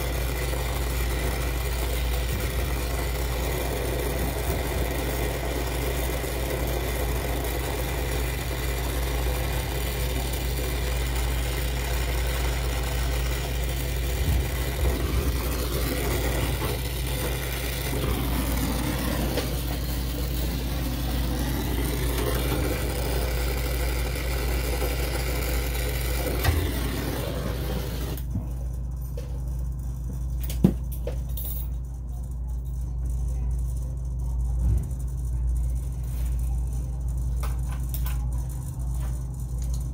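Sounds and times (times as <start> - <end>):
gas hissing: 0.0 - 28.3
low machine hum: 0.0 - 39.9.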